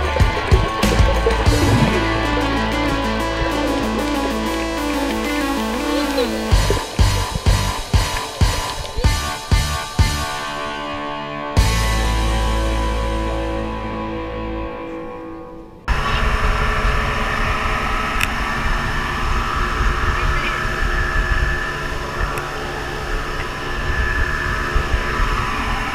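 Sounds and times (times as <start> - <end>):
speedboat engine running fast: 0.0 - 10.4, 15.9 - 25.9
water rushing: 0.0 - 10.8
background guitar music: 0.0 - 15.9
wind noise on microphone: 15.9 - 25.9.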